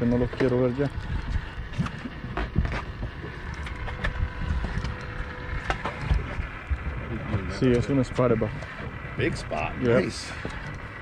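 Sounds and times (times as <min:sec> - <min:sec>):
wind rumble on microphone: 0:00.0 - 0:07.7.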